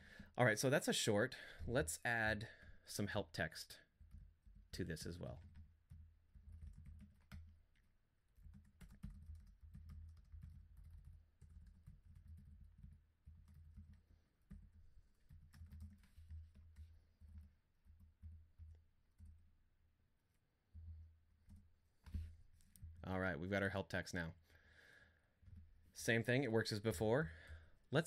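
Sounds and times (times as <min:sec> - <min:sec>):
keyboard typing: 0:04.0 - 0:19.5.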